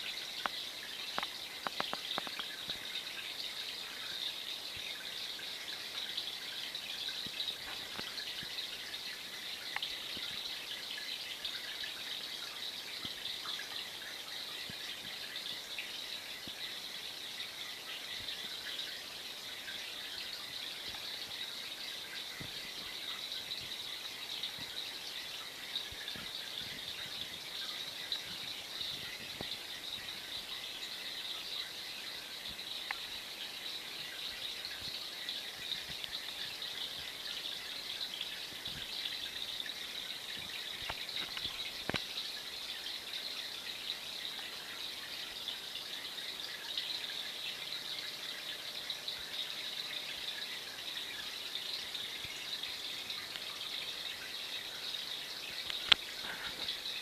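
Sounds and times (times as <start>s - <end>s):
aquarium water fizzing: 0.0s - 57.0s
faint clicks: 0.4s - 2.8s, 40.4s - 42.2s, 55.6s - 56.8s.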